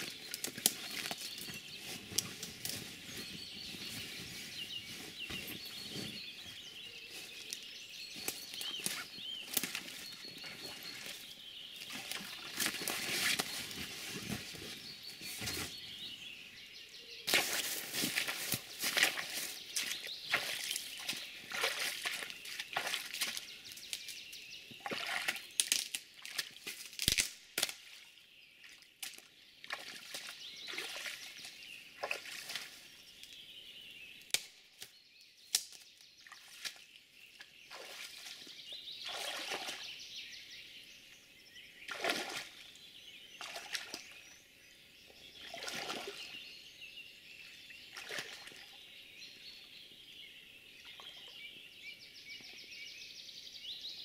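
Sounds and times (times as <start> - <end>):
footsteps wading through water: 0.0 - 15.8, 17.3 - 27.1, 27.8 - 33.4, 36.2 - 40.0, 41.9 - 42.8, 43.4 - 44.2, 45.3 - 46.4, 47.7 - 48.8.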